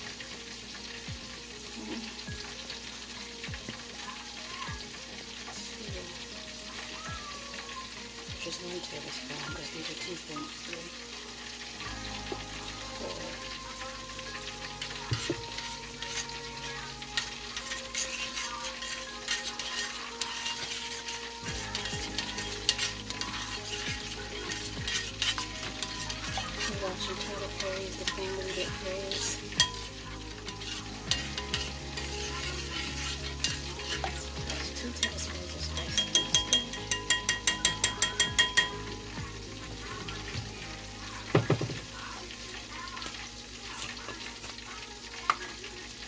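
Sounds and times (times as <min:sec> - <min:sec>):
frying sizzle: 0:00.0 - 0:46.0
metal spoon stirring in bowl: 0:13.0 - 0:39.1.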